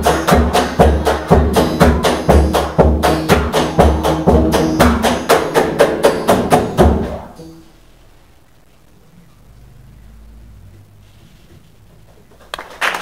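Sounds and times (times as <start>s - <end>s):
hand-drum hits: 0.0s - 7.7s.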